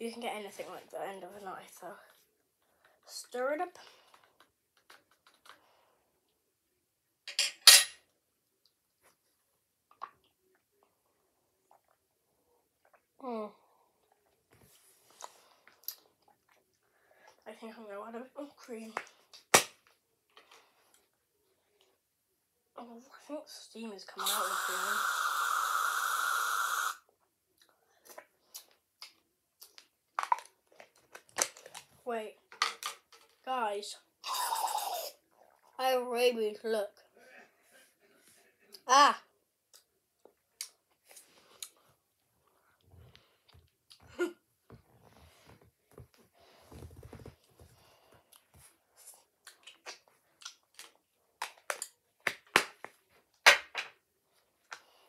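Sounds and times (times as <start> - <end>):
aerosol can spraying hiss: 24.2 - 27.0.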